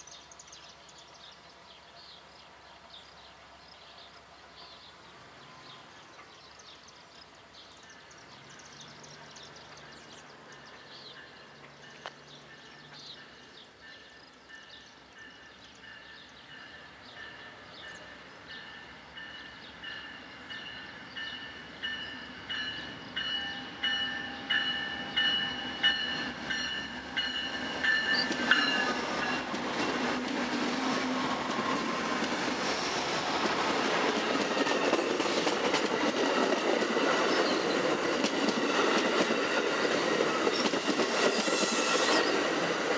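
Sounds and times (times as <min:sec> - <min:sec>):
train rumble: 0:07.8 - 0:42.9
crossing bell ringing: 0:10.6 - 0:29.5.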